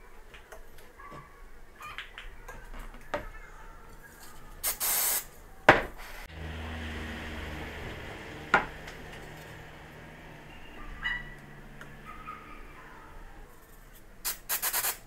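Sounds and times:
short hiss: 4.6s - 5.4s, 14.2s - 15.0s
sharp knock on workbench: 5.7s - 5.9s.

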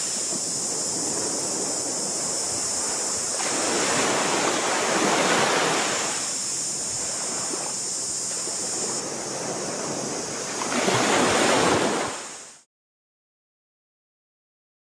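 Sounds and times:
small waves washing onto sand: 0.0s - 12.6s
steady high hiss: 0.0s - 12.7s.

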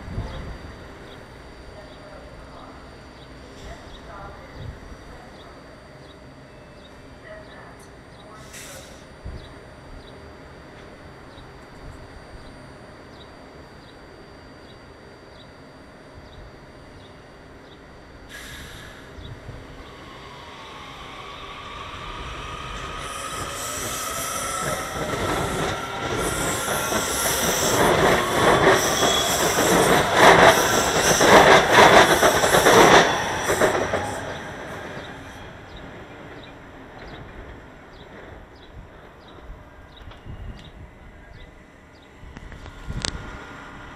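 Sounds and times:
air brake hiss: 8.4s - 9.1s, 18.3s - 19.1s
train motors whining: 8.5s - 38.5s, 41.7s - 43.9s
wheels clacking on rails: 21.5s - 40.8s.

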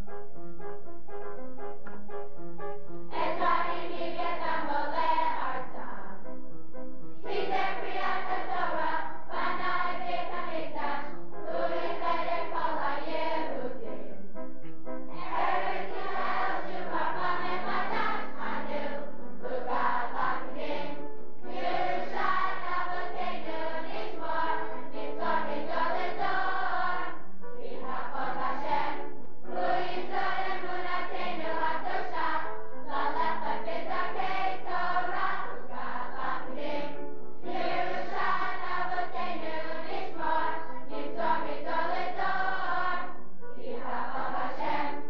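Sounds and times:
group singing in unison: 3.1s - 6.1s, 7.2s - 14.1s, 15.1s - 45.0s.

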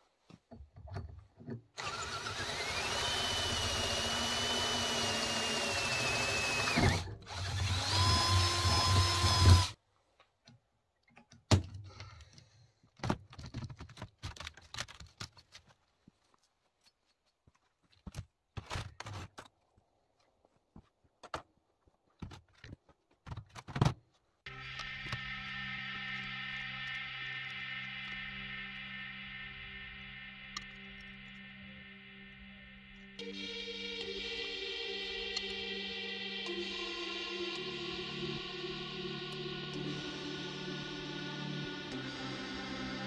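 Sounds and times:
cordless drill boring through steel: 1.8s - 9.8s.

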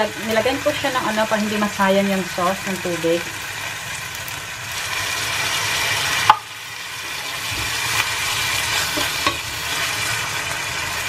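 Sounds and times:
food sizzling in a pan: 0.0s - 11.0s
spatula stirring food: 7.0s - 10.2s.

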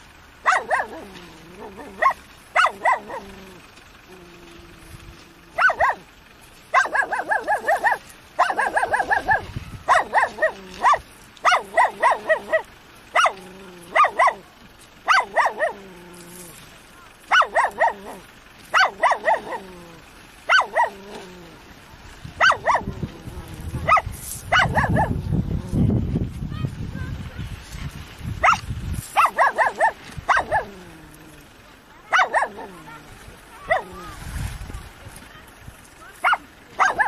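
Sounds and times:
dog yipping: 0.4s - 3.5s, 5.6s - 6.1s, 6.7s - 14.4s, 15.0s - 15.9s, 17.3s - 21.4s, 22.4s - 25.2s, 28.4s - 30.9s, 32.1s - 34.2s, 36.2s - 37.0s.

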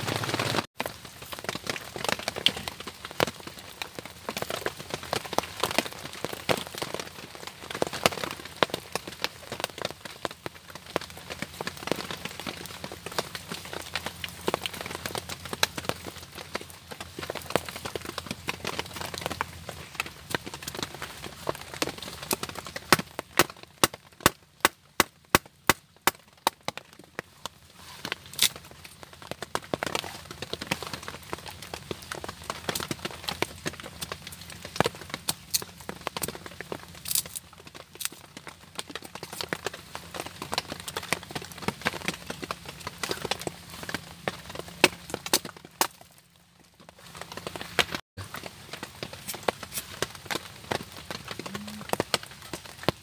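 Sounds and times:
wooden kindling knocks and cracks: 28.1s - 46.2s.

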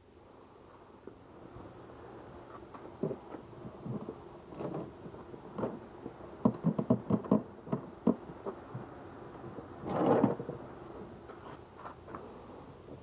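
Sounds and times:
plastic scraping plastic: 3.0s - 5.8s, 9.8s - 10.6s
hollow plastic knocks and clicks: 6.4s - 8.2s.

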